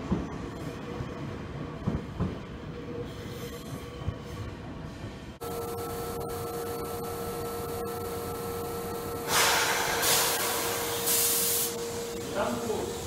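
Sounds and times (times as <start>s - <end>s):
electric train hum: 0.0s - 13.0s
compressed-air hiss: 9.2s - 13.0s.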